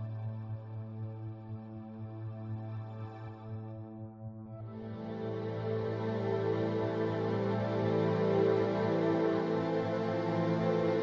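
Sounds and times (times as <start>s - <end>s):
music of held chords: 0.0s - 11.0s.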